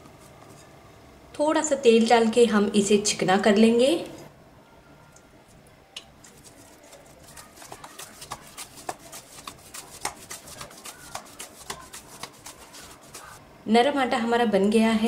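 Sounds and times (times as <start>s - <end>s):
hands kneading sticky dough: 6.0s - 13.4s.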